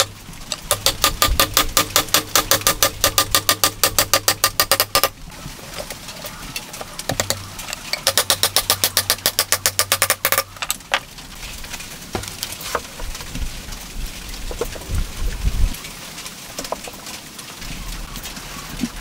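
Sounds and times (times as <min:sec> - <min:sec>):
knocks of wood: 0:00.0 - 0:05.2, 0:06.9 - 0:11.1
hammer tapping on wood: 0:07.1 - 0:07.4.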